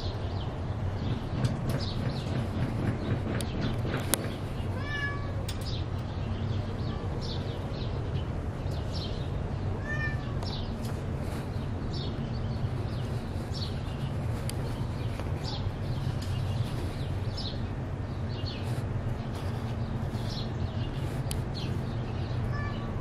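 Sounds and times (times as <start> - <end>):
steady low hum: 0.0 - 23.0
cat meowing: 4.8 - 5.5, 9.8 - 10.5, 22.4 - 23.0.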